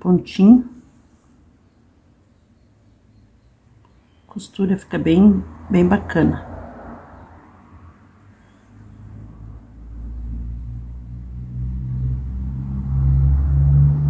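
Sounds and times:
low engine rumble: 0:03.9 - 0:14.0.

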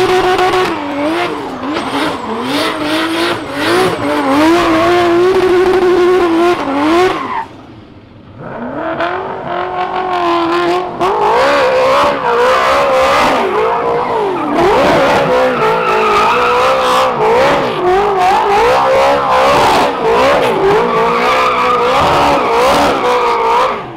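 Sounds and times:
car engines revving hard: 0:00.0 - 0:23.9
tyres squealing on tarmac: 0:12.2 - 0:23.9.

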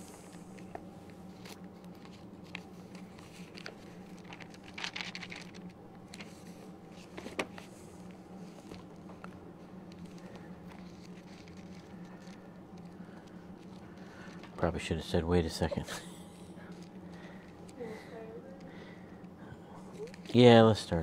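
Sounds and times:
steady low hum: 0:00.0 - 0:21.0
book and papers rustling: 0:00.3 - 0:14.7.

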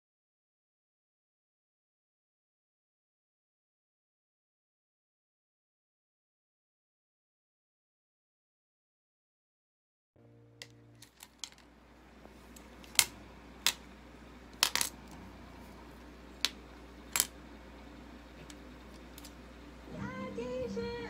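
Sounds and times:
faint low hum: 0:10.2 - 0:21.0
small objects clicking on table: 0:10.6 - 0:11.6, 0:12.6 - 0:13.9, 0:14.5 - 0:15.2, 0:16.4 - 0:17.4.

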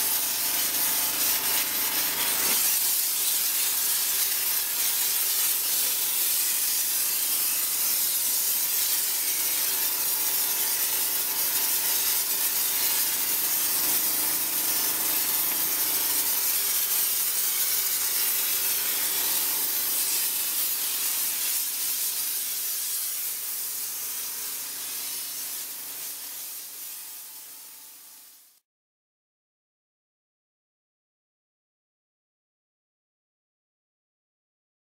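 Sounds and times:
steam cleaner hissing: 0:00.0 - 0:28.6.

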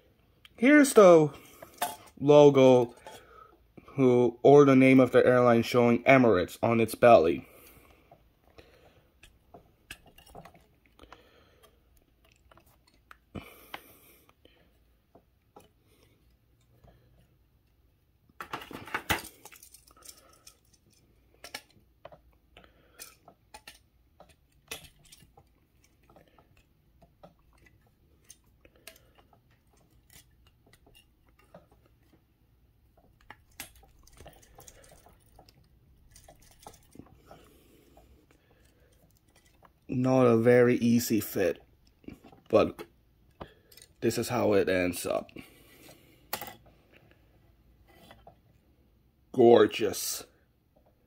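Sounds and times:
plastic clatter: 0:18.4 - 0:22.2.

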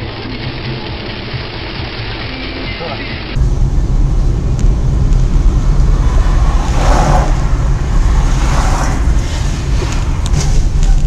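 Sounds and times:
car rumbling while moving: 0:00.0 - 0:11.0
wind buffeting microphone: 0:03.4 - 0:11.0.

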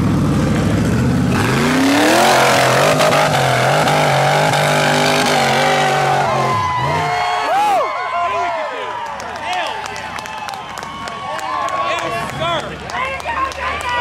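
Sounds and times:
buggy engine revving: 0:00.0 - 0:07.8.

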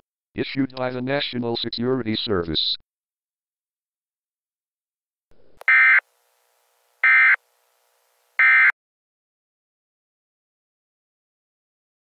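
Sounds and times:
digital data tone bursts: 0:07.0 - 0:07.4.

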